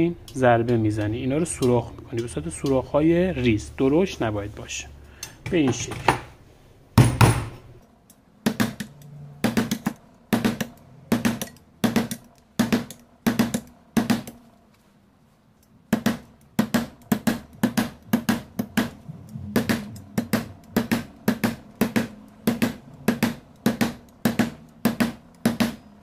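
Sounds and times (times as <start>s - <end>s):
hammer tapping nail through metal: 8.4s - 14.4s, 15.9s - 25.9s.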